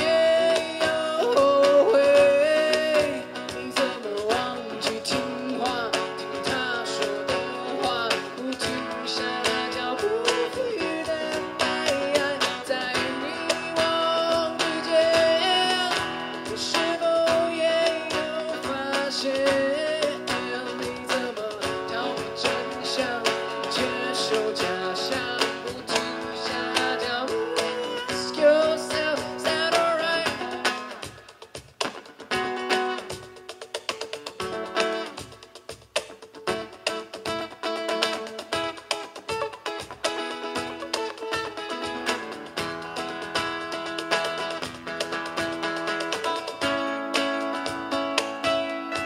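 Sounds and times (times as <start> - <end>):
strummed acoustic guitar: 0.0 - 49.0
melodic lead line: 40.0 - 49.0.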